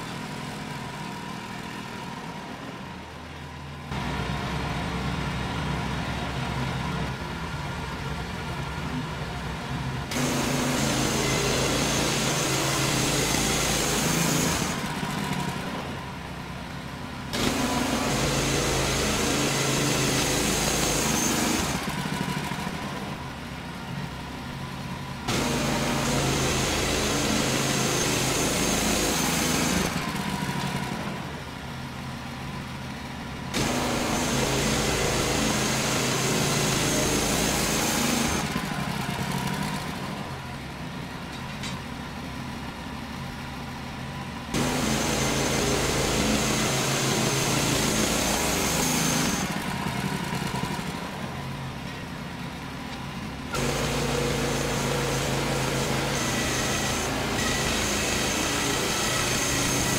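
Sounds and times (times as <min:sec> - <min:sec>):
sawmill engine humming: 0:00.0 - 0:59.9
band blade cutting wood: 0:10.1 - 0:14.9, 0:33.5 - 0:38.6, 0:53.5 - 0:59.9.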